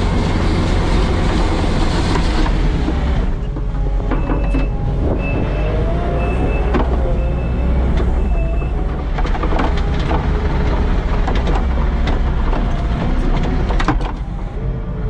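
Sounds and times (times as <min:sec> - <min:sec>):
plow clanks and knocks: 0:00.0 - 0:14.5
diesel engine running: 0:00.0 - 0:15.0
reverse backup alarm beeping: 0:03.8 - 0:08.8.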